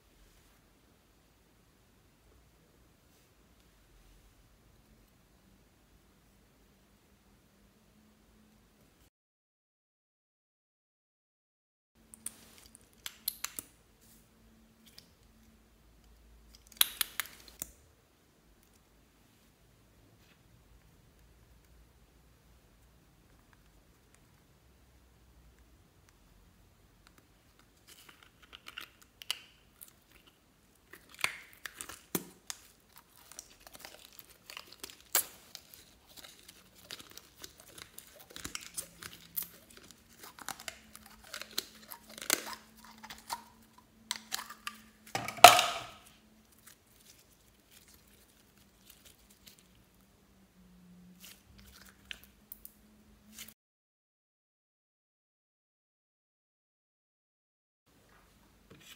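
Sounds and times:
slime squelching and popping: 0:27.7 - 0:46.0.

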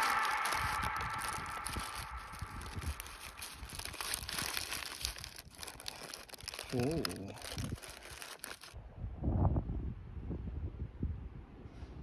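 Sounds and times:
paper bag crinkling: 0:00.0 - 0:08.8
paper tearing: 0:00.0 - 0:08.8.

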